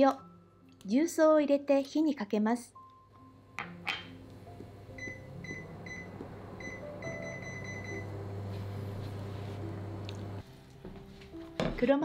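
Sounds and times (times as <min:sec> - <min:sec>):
cooktop low hum: 0:03.3 - 0:11.3
cooktop beeping: 0:03.6 - 0:08.6.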